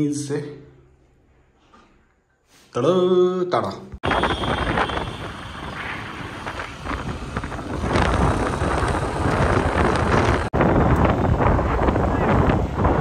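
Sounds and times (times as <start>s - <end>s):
moving vehicle rumble: 4.0s - 13.0s
wind buffeting microphone: 4.0s - 13.0s.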